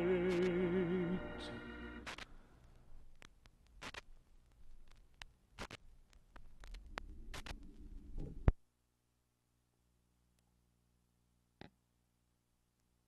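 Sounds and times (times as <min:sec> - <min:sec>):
faint low hum: 0:00.0 - 0:13.0
record clicks and crackle: 0:00.3 - 0:00.6, 0:02.0 - 0:08.6.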